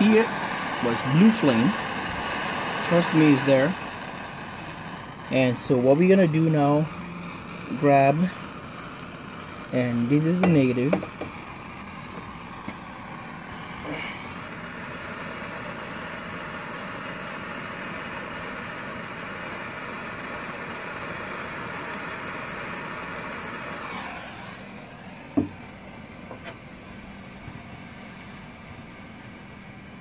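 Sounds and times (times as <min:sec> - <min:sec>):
propane torch hissing: 0:00.0 - 0:30.0
single knock: 0:25.4 - 0:25.6.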